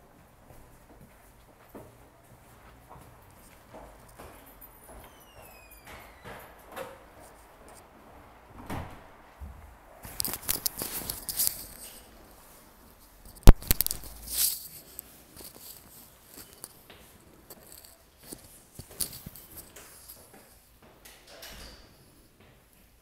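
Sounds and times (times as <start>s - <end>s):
fabric rustling on microphone: 10.0s - 20.6s.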